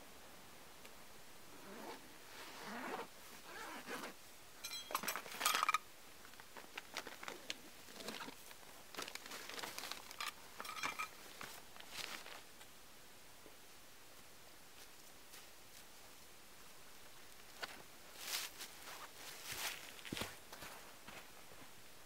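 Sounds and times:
metallic ringing clink: 4.6 - 5.8, 10.6 - 11.2
fabric rustling: 6.7 - 12.5.

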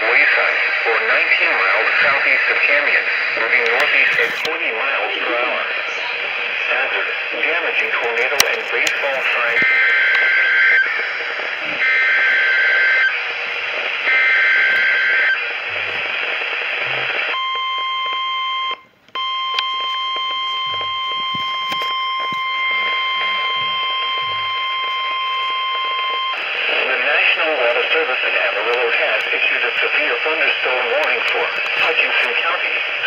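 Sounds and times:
radio static hiss: 0.0 - 18.2, 18.9 - 33.0
steady warning alarm tone: 9.0 - 26.5
two-pitch data header bursts: 20.0 - 26.4.

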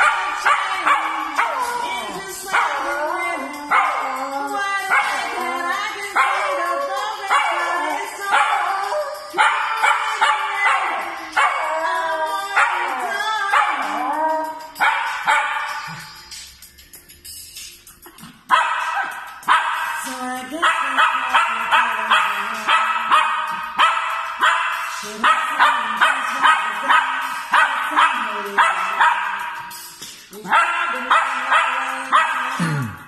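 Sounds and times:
dog howling yips: 0.0 - 16.0
music: 0.0 - 33.0.

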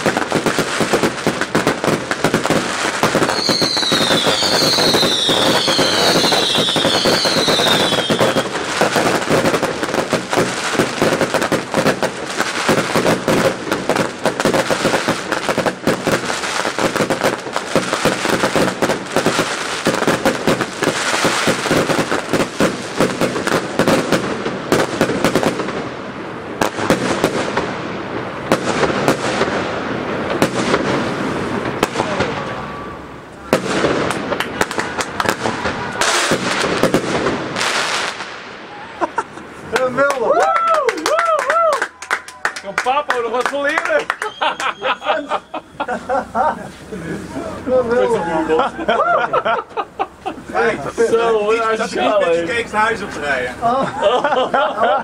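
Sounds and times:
fireworks whistles: 0.0 - 25.8, 30.4 - 38.9, 44.0 - 46.1
fireworks crackling and banging: 0.0 - 55.0.

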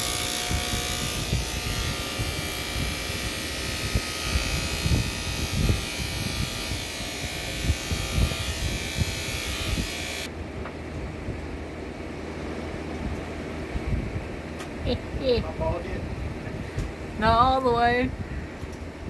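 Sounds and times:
electric hair clippers buzzing: 0.0 - 10.3.

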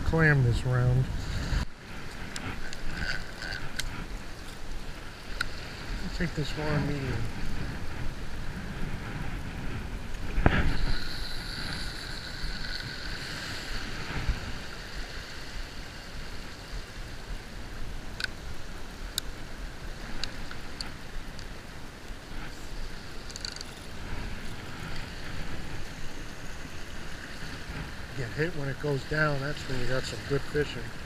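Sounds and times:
low surf hiss: 0.0 - 31.0
wind buffeting microphone: 0.0 - 31.0
casting reel whirring: 10.5 - 15.8, 23.2 - 28.1.

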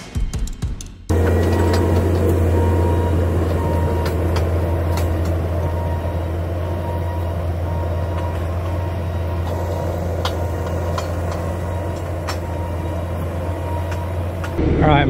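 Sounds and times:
sharp clicks and clanks: 1.1 - 6.0, 8.0 - 14.6
diesel engine running under load: 1.1 - 15.0.

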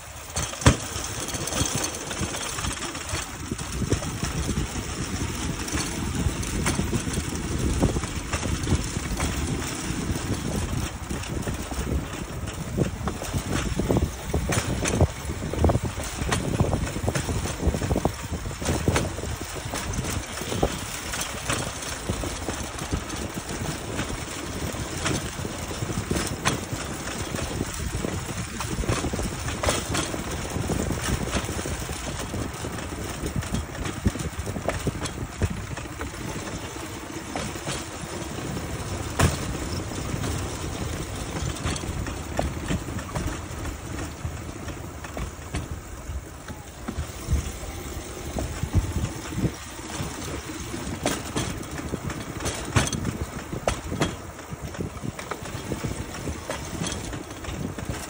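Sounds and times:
sharp rail clacks: 0.0 - 58.0
wheels rumbling on rails: 0.0 - 58.0.

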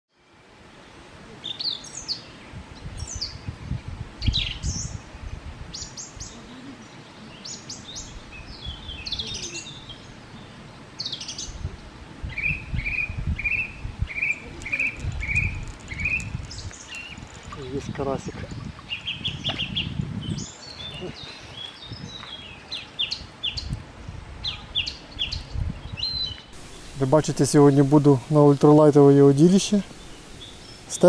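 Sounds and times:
birds chirping and whistling: 12.3 - 17.2, 18.6 - 23.7, 29.6 - 31.0.

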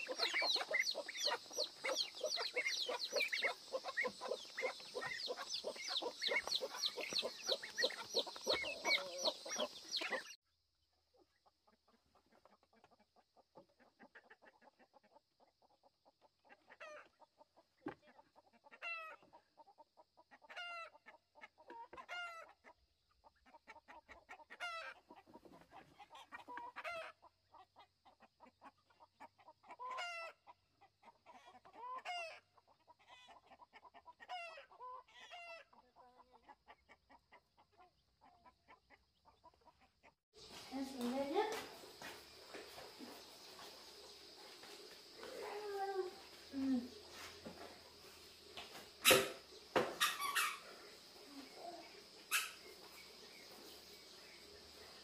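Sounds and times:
chicken calling: 0.0 - 10.4, 29.6 - 30.4, 49.0 - 53.1
chicks and ducklings peeping: 0.0 - 10.4, 11.2 - 55.0
hens clucking: 0.0 - 10.4, 11.2 - 55.0.

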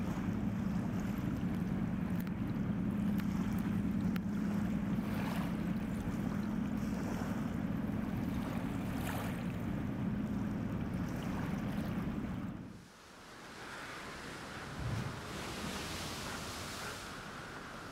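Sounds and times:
ship diesel engine droning: 0.0 - 12.7
river water washing: 0.0 - 17.9
wind noise: 14.4 - 17.9.

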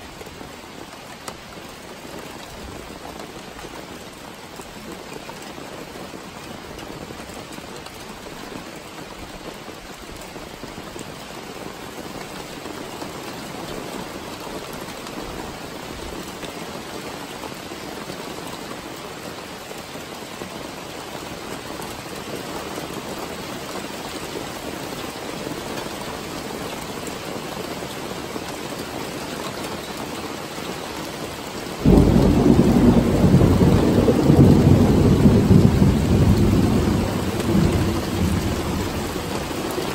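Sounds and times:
steady rain: 0.0 - 39.9
thunder clap and rumbling: 31.8 - 39.5.

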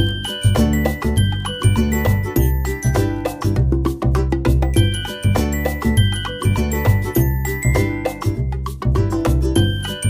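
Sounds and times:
music with bass and bell melody: 0.0 - 10.0.

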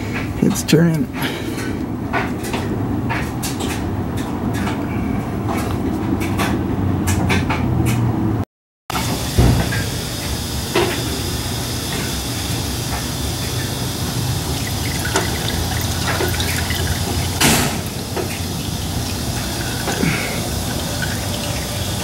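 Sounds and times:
engine oil dribbling: 9.1 - 22.0.

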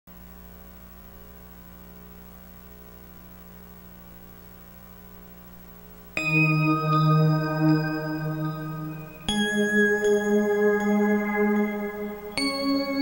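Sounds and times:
electrical mains hum: 0.1 - 13.0
bell-like ident music: 6.2 - 13.0.

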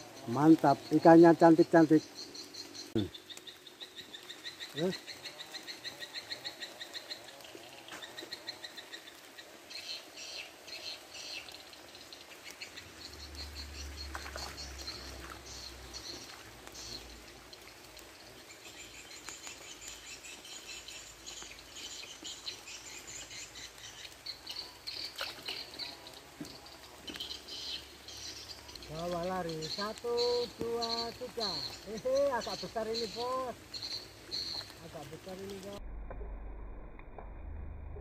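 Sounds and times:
rain falling on a pond: 0.0 - 37.5
low rumble: 35.8 - 38.0.

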